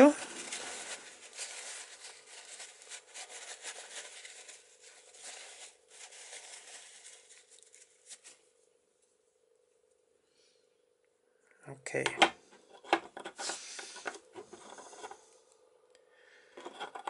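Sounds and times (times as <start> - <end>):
paper towel rubbing on metal: 0.0 - 8.4.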